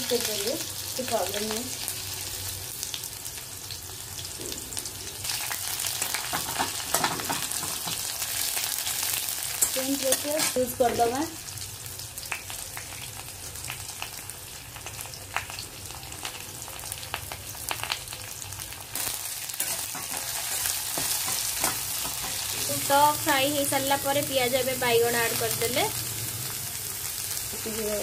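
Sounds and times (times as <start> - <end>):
onion sizzling in hot oil: 0.0 - 28.0
steel spatula stirring: 19.6 - 22.9.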